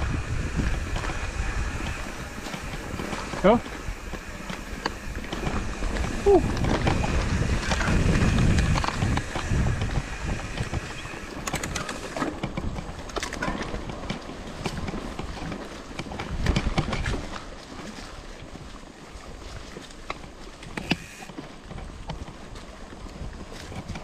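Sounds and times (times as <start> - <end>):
bike tyre noise: 0.0 - 17.2, 20.8 - 21.4
wind buffeting microphone: 0.0 - 24.0.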